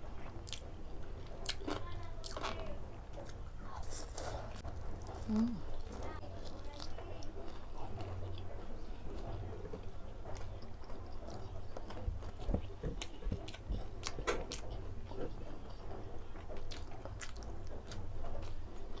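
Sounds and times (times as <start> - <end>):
crispy food chewing: 0.0 - 19.0
crackles and mouth clicks: 1.3 - 8.5.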